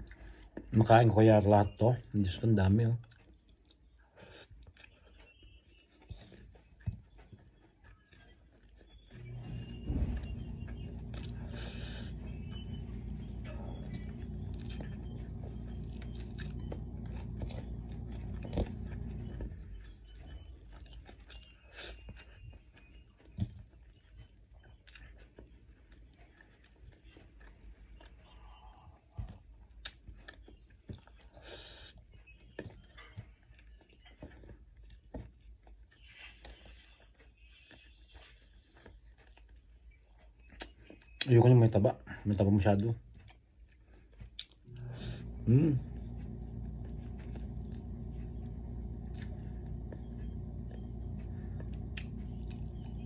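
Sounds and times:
person chewing: 0.0 - 0.7, 3.0 - 41.3, 42.8 - 53.0
steady low hum: 9.1 - 22.0, 44.3 - 53.0.

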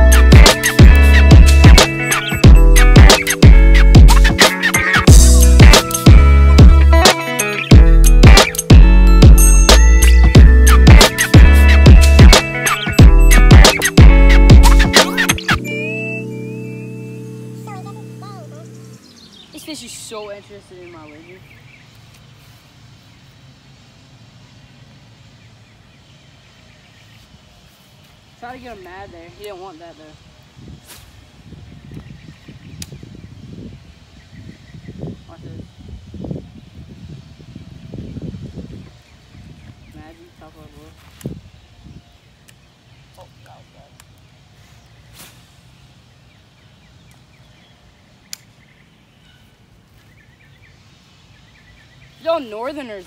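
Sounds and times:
faint birds chirping: 5.8 - 53.0
faint bird chirps: 46.4 - 52.7.

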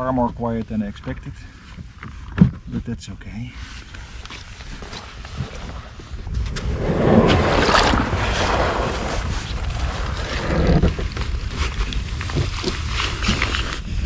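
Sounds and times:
kayak hull scraping and swishing: 0.0 - 2.8, 3.6 - 14.0
wind rumbling on microphone: 3.8 - 14.0.

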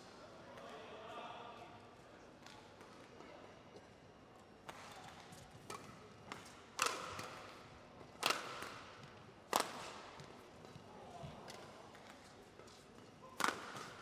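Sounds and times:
rackets hitting shuttlecock: 4.7 - 7.6, 8.2 - 10.8, 13.3 - 14.0.

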